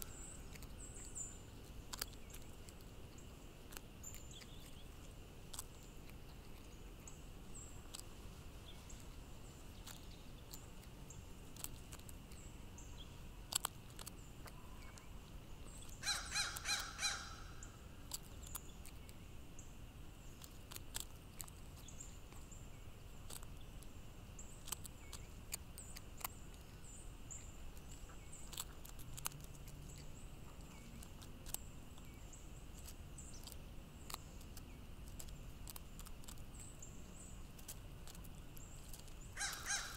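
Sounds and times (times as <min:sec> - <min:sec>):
beak pecking on gravel: 0:00.0 - 0:39.9
crow cawing: 0:16.0 - 0:17.5, 0:39.4 - 0:39.9.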